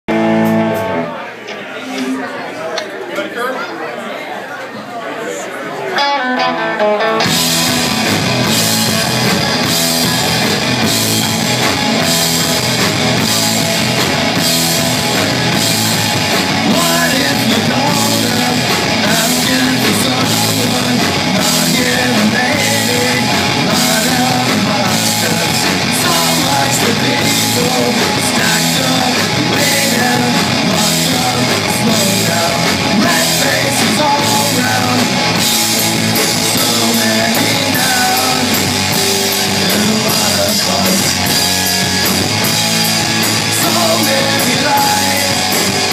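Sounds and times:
bass guitar: 0.0 - 1.2, 6.0 - 45.9
drum kit beat: 0.1 - 1.0, 7.2 - 45.9
electric guitar: 0.1 - 1.2, 6.0 - 45.9
man singing: 16.3 - 41.8, 43.0 - 45.9.

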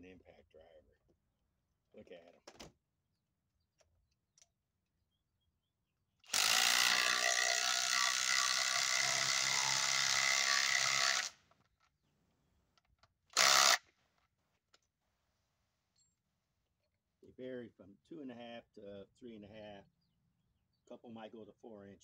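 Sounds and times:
impact driver hammering screw: 6.3 - 11.4, 13.4 - 13.8.

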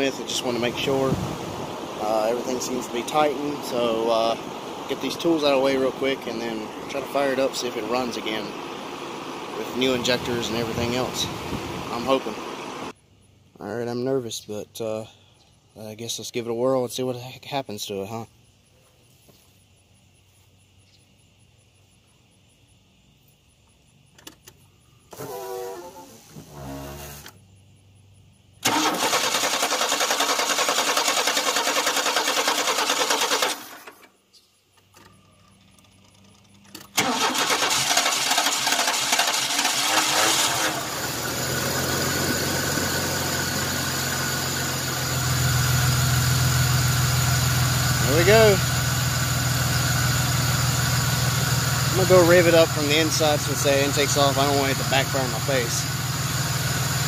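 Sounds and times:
engine idling: 0.0 - 12.9, 28.6 - 34.0, 35.0 - 57.0
engine starter cranking: 28.6 - 34.1, 34.8 - 43.7.

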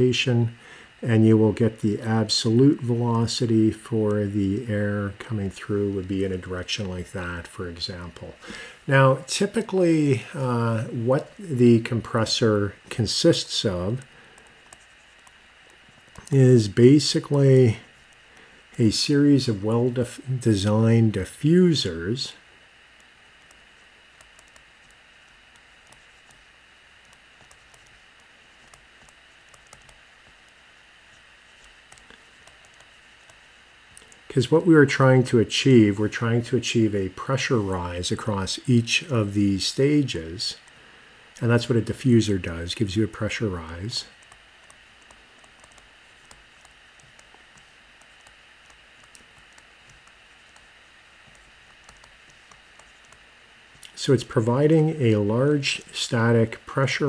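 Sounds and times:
background hiss: 0.0 - 57.0
stylus writing on tablet screen: 9.4 - 18.2, 19.0 - 34.0, 42.7 - 53.4.

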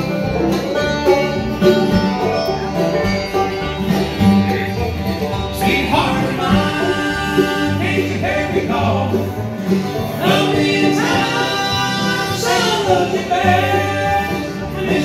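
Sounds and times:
bluegrass band playing: 0.0 - 15.0
men singing in harmony: 5.6 - 15.0.

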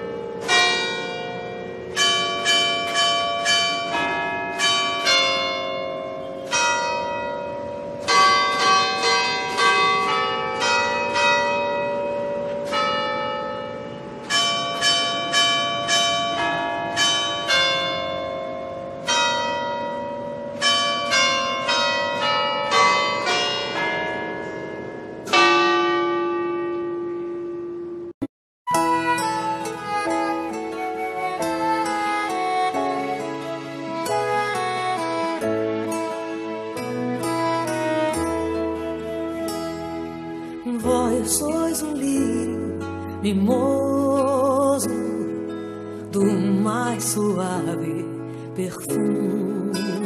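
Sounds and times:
deep bell ringing: 0.0 - 30.5
church bells pealing: 0.0 - 48.2.

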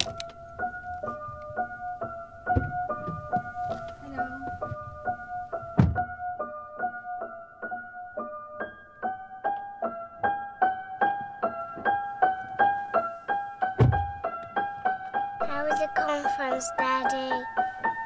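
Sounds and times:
piano-like keyboard repeated notes: 0.0 - 18.0
deep thud: 2.5 - 3.9, 5.6 - 6.3, 13.8 - 14.3.

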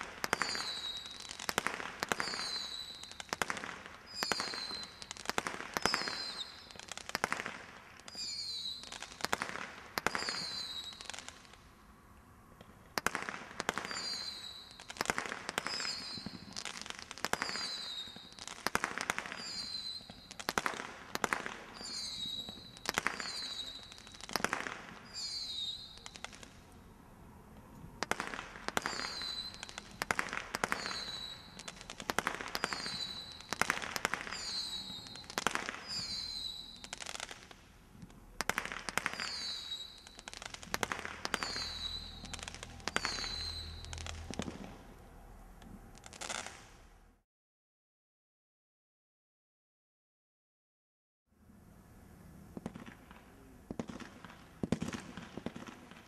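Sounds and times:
roman candle shots popping: 0.0 - 11.6, 28.0 - 44.9.

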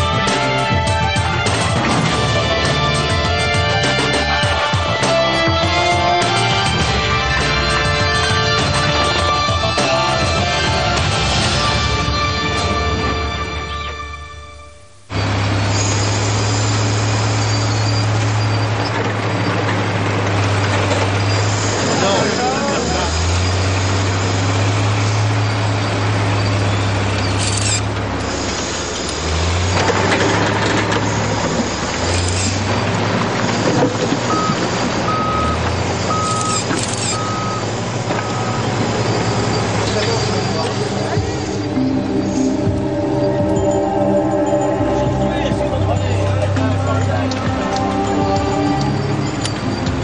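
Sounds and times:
heavy machinery engine humming: 0.0 - 50.0
vehicle reversing alarm beeping: 13.2 - 19.6, 33.5 - 50.0.

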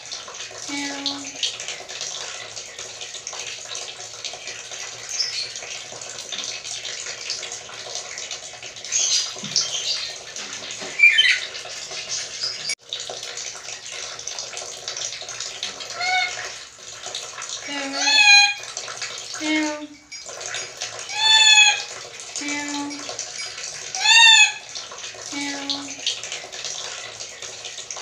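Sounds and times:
parrot squeaky calls: 10.9 - 11.6, 15.9 - 16.4, 17.7 - 18.6, 21.1 - 21.9, 24.0 - 24.6.

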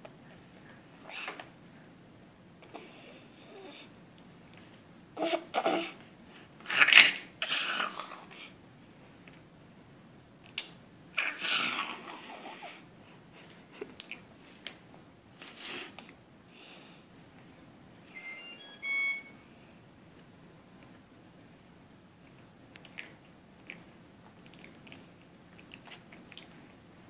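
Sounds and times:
high beeps: 18.1 - 19.4.

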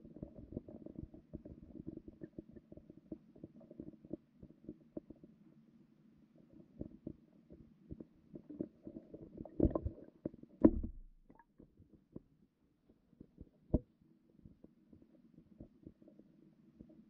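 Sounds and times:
underwater knocks and thumps: 7.9 - 11.6
muffled underwater rumbling: 10.6 - 11.4.

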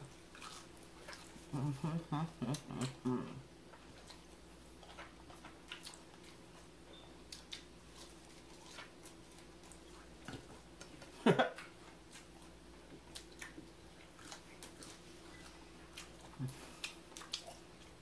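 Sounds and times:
chewing and crunching: 0.0 - 18.0
low vocal sound: 1.5 - 3.5.

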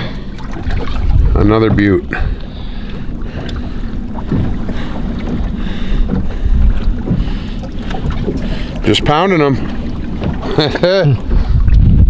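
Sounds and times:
boat motor running: 0.0 - 12.0
wind on microphone: 0.6 - 2.5, 11.2 - 12.0.

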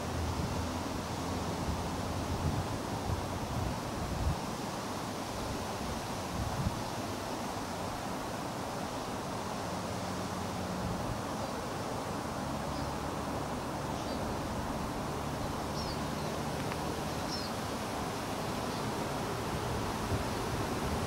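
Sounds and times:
bird chirps: 15.7 - 16.4, 17.1 - 17.6.

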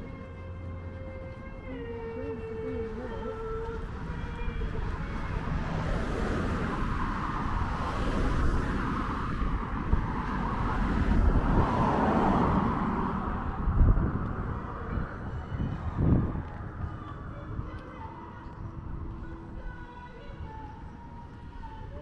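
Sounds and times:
cars passing: 0.0 - 22.0
wind rumbling on microphone: 0.0 - 22.0.

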